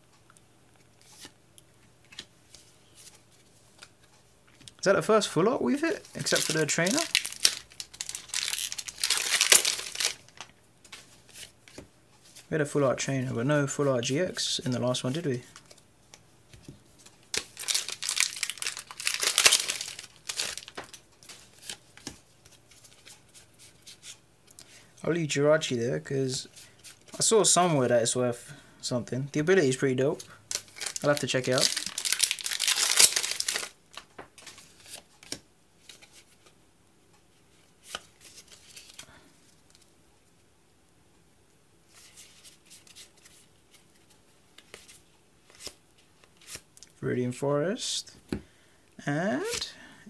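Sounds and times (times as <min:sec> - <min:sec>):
foil wrapper crinkling and tearing: 0:06.1 - 0:10.4, 0:17.3 - 0:21.0, 0:30.5 - 0:34.1.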